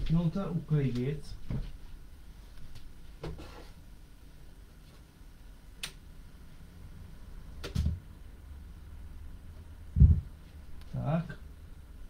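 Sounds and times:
heavy knock with dull thud: 10.0s - 10.3s.

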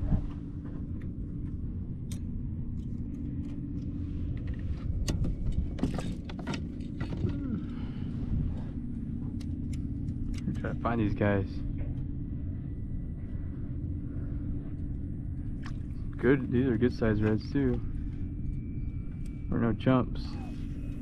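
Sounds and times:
low motor hum: 0.0s - 21.0s.

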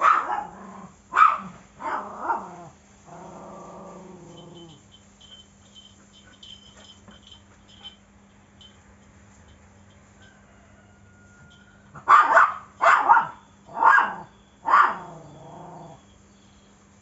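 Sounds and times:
small dog barking: 0.0s - 2.6s, 12.0s - 16.0s
dog growling: 1.8s - 4.8s, 14.9s - 16.0s.

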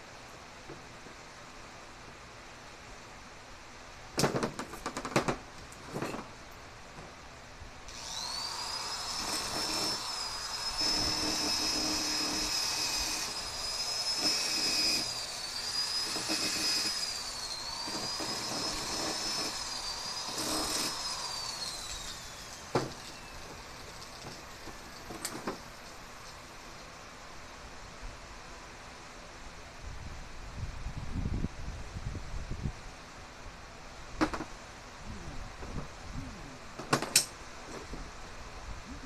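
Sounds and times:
angle grinder grinding metal: 7.9s - 26.0s.

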